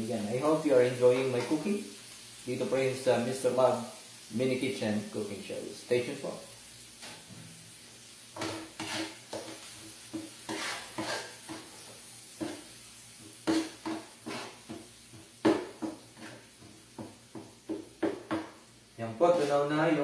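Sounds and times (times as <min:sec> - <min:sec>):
faint sizzle: 0:00.0 - 0:20.0
utensil scraping a frying pan: 0:08.3 - 0:16.7
knocks against a pan: 0:17.0 - 0:18.6.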